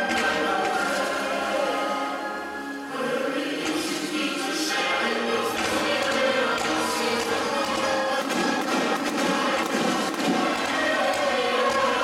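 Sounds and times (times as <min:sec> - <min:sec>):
soundtrack music with choral singing: 0:00.0 - 0:12.0.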